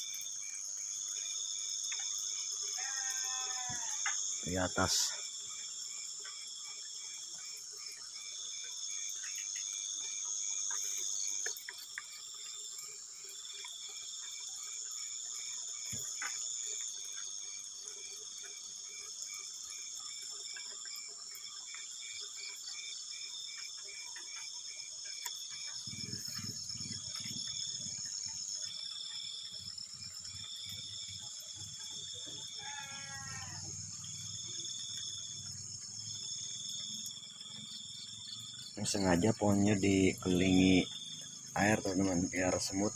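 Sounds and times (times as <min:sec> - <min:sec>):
crickets and night insects trilling: 0:00.0 - 0:42.9
wavering animal call: 0:02.8 - 0:04.0, 0:32.3 - 0:33.8.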